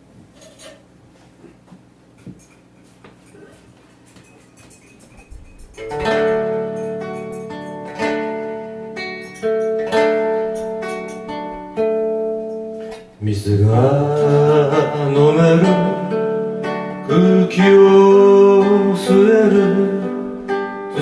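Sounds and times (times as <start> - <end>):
acoustic guitar chords strummed: 4.2 - 21.0
man singing: 13.2 - 21.0.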